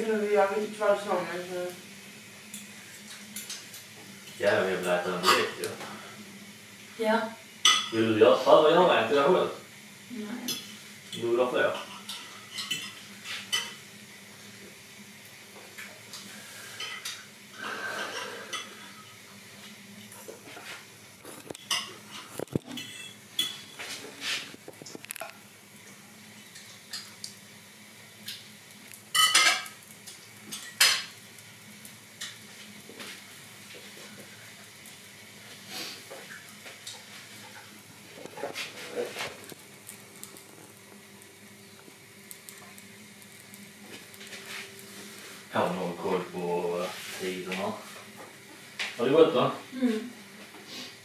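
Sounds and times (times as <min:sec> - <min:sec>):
faint steady hum: 0:00.0 - 0:51.0
dishes and cutlery clinking: 0:04.9 - 0:05.6, 0:10.5 - 0:13.8, 0:21.4 - 0:24.0, 0:29.2 - 0:29.8.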